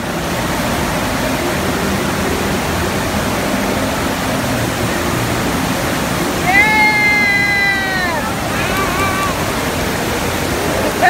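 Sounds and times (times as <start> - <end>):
rushing water from wave machine: 0.0 - 11.0.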